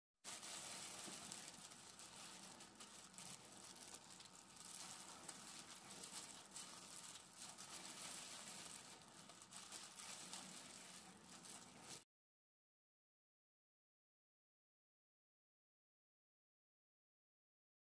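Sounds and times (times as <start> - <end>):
plastic gloves crinkling: 0.2 - 12.1
rice squishing: 0.3 - 12.0.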